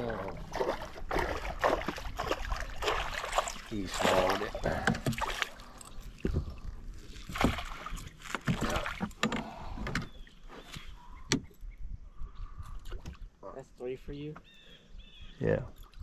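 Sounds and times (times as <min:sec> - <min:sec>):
fish splashing in landing net: 0:00.5 - 0:04.5.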